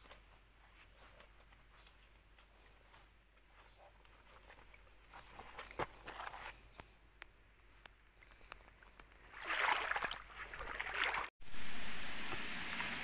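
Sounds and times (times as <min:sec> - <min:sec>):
stream water splashing: 0:09.2 - 0:13.0
steady hiss: 0:11.4 - 0:13.0.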